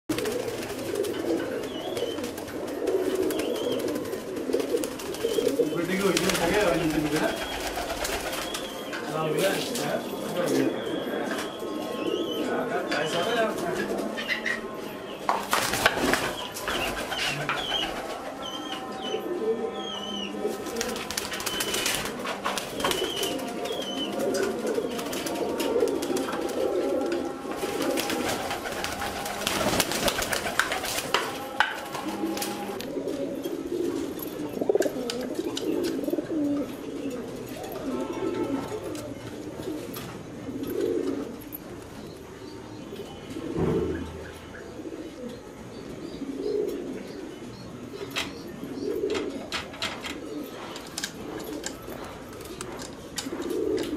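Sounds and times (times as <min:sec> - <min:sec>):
pigeons cooing: 0:00.1 - 0:53.9.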